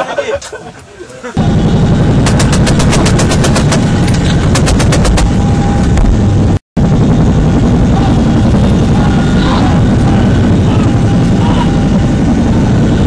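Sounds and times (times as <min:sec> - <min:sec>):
helicopter engines and rotors droning: 0:01.4 - 0:13.0
rapid sharp cracks: 0:02.2 - 0:05.3.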